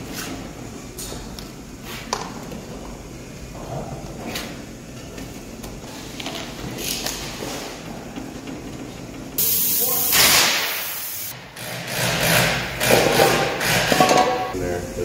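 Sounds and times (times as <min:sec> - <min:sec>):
air hissing: 0:09.4 - 0:11.4
loud air blast hiss: 0:09.4 - 0:11.4.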